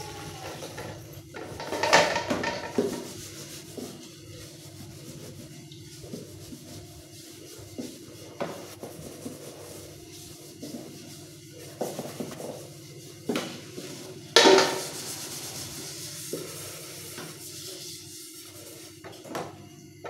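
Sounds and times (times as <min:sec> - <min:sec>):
sponge scrubbing pot: 0:00.0 - 0:13.1, 0:13.8 - 0:19.0
pot clattering in metal sink: 0:00.3 - 0:03.0, 0:14.4 - 0:15.0.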